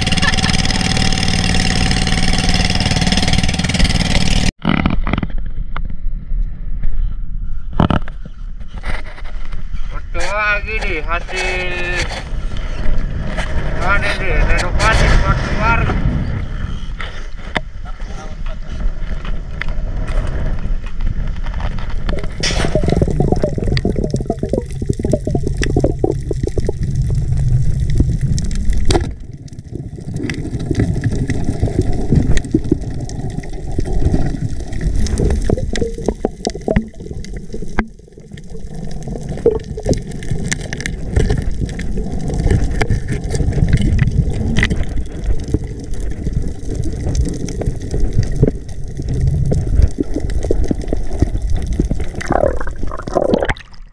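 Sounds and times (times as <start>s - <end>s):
water sloshing and gurgling: 18.7s - 53.9s.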